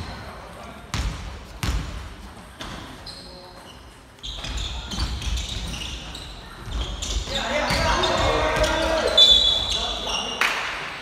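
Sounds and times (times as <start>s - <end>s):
basketball bouncing on wooden floor: 0.9s - 2.0s
shoe squeaks: 2.6s - 10.4s.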